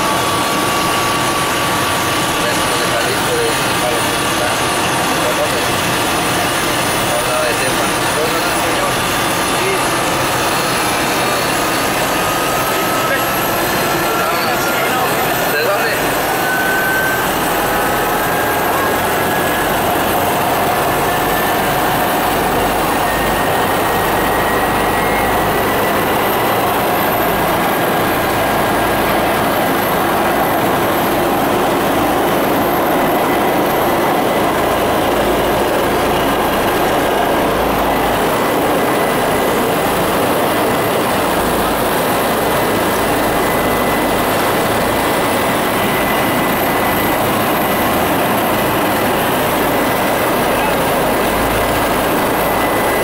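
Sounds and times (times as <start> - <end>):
helicopter engine and rotor: 0.0 - 53.0.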